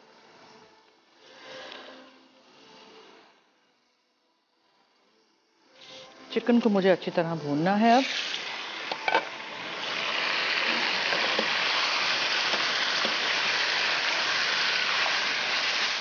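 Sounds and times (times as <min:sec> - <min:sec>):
chicken sizzling in hot oil: 0:07.4 - 0:16.0.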